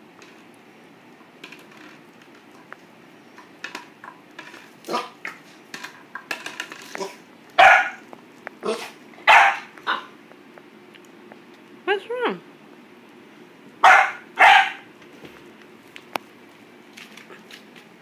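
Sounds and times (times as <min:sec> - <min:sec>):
plastic bottle clattering on tile: 0:01.4 - 0:02.6, 0:03.4 - 0:04.7, 0:05.3 - 0:07.2
puppy barking: 0:07.6 - 0:08.0, 0:09.2 - 0:10.1, 0:13.8 - 0:14.9.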